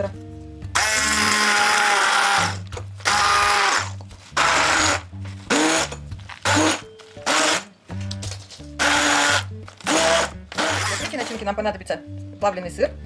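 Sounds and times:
hand blender bursts: 0:00.8 - 0:07.7, 0:08.8 - 0:11.4.

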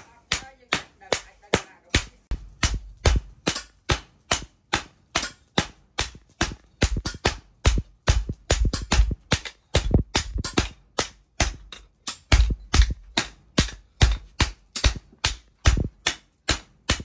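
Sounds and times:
hammer striking anvil: 0:00.0 - 0:17.0.

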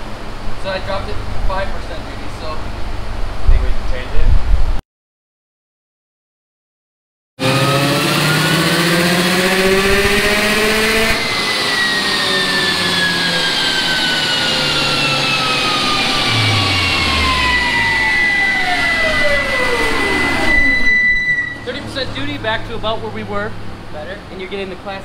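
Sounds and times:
car engine revving: 0:07.4 - 0:25.0
steady whine: 0:07.4 - 0:25.0.

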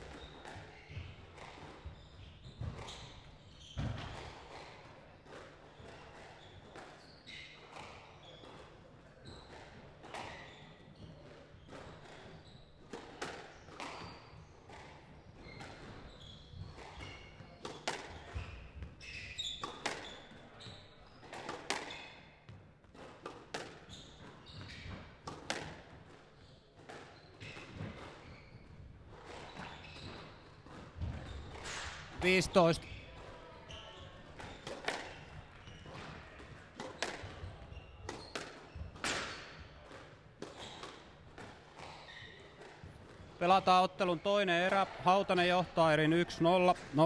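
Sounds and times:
squash ball smacks: 0:25.3 - 0:25.8.

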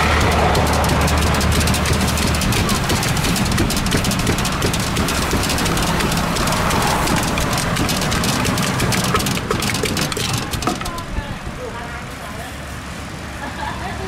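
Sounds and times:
pestle pounding in mortar: 0:00.0 - 0:11.3.

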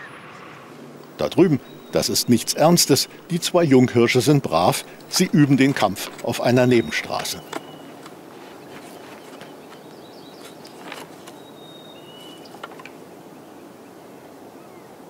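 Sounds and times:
outdoor background noise: 0:00.0 - 0:15.0
elk antlers clacking together: 0:05.0 - 0:08.2.

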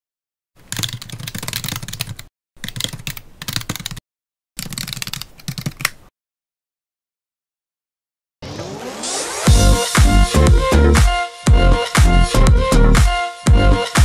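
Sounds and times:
computer keyboard typing clicks: 0:00.6 - 0:04.0, 0:04.6 - 0:06.0.

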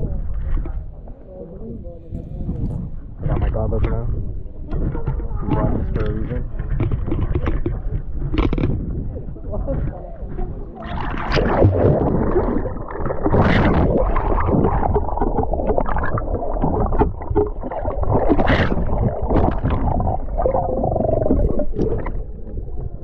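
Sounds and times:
muffled water sloshing and bubbling: 0:00.0 - 0:23.0
water splashes: 0:04.8 - 0:23.0.

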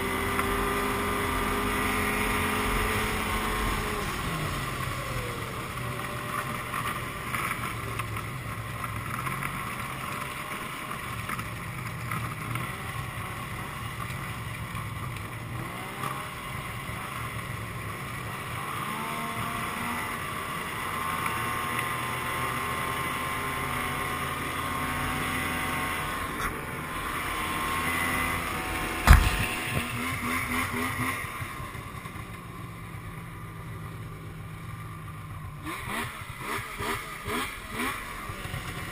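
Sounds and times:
snowmobile engine running: 0:00.0 - 0:38.9
sharp knock: 0:29.0 - 0:29.8.

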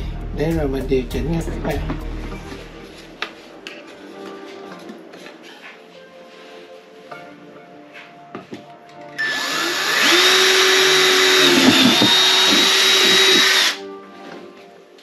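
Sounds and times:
power drill whining: 0:09.2 - 0:13.8.

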